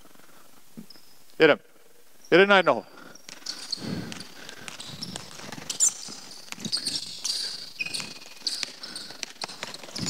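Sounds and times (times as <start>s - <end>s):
sneakers squeaking: 2.2s - 10.0s
basketball bouncing on wooden court: 3.2s - 10.0s.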